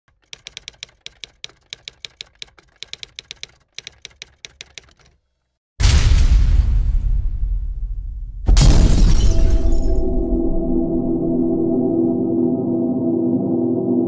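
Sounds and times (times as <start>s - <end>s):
typewriter clacks: 0.1s - 5.2s
loud crash with deep boom: 5.8s - 11.1s.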